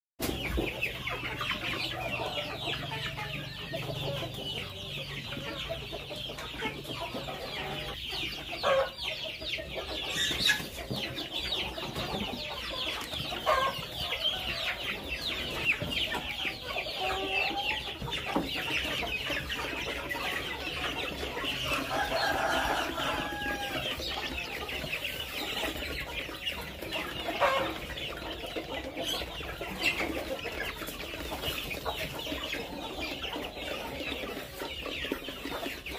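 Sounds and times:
chickens peeping and clucking: 0.2 - 35.9
chicken loud call: 21.7 - 23.9.

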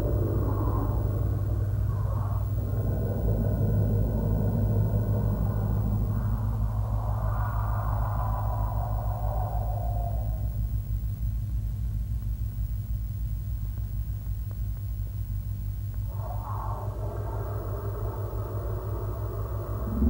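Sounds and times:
fluttering low electronic rumble: 0.0 - 9.1, 15.2 - 20.0.

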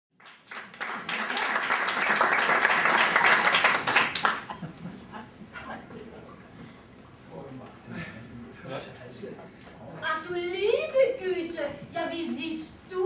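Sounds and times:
audience applauding: 0.2 - 4.6.

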